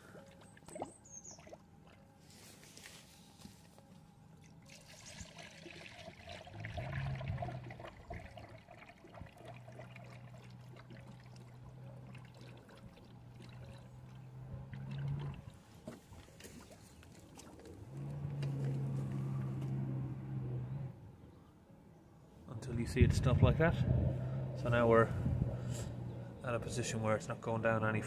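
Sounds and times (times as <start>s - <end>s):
liquid trickling into funnel: 4.4s - 15.6s
low hum: 17.6s - 28.0s.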